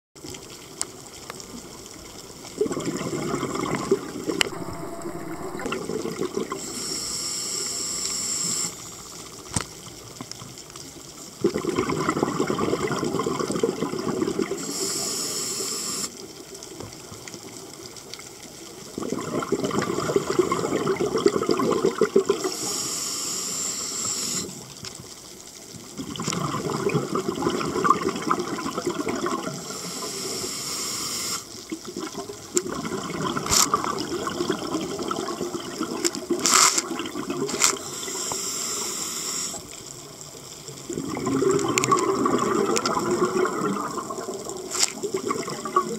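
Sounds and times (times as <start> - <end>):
exhaled bubbles rushing: 2.4 - 6.7, 11.4 - 14.7, 18.9 - 22.5, 25.9 - 29.7, 31.7 - 38.1, 40.6 - 45.9
regulator hiss: 6.6 - 9.0, 14.6 - 16.2, 22.5 - 24.6, 29.6 - 31.5, 37.6 - 39.7.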